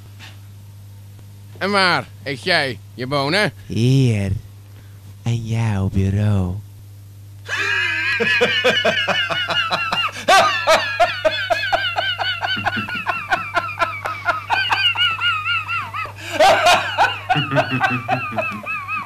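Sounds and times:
low hum: 0:00.0 - 0:19.0
high-pitched cackling laugh: 0:07.5 - 0:19.0.

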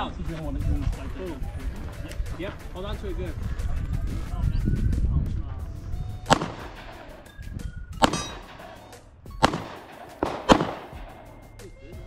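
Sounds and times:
pistol shots with echo: 0:06.3 - 0:07.4, 0:08.0 - 0:11.5.

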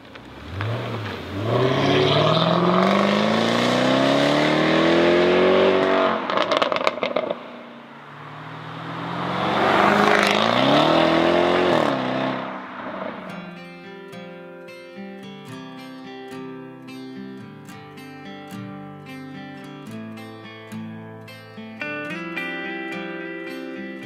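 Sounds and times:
exhaust crackles and pops: 0:00.0 - 0:03.6, 0:05.8 - 0:07.6
sports car engine accelerating: 0:00.0 - 0:13.4.

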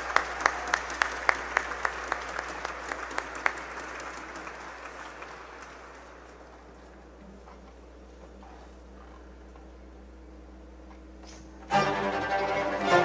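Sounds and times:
audience applauding: 0:00.0 - 0:06.5.

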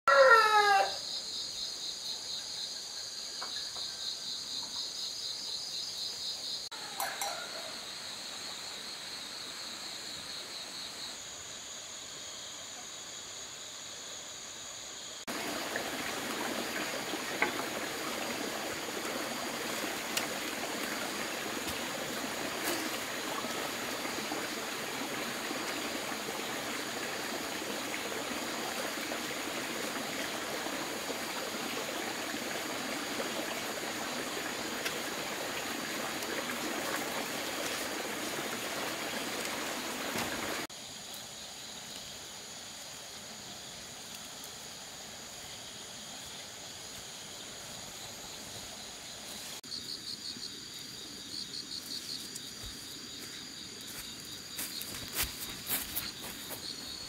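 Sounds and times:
running water rushing: 0:15.3 - 0:40.7, 0:53.7 - 0:57.0.

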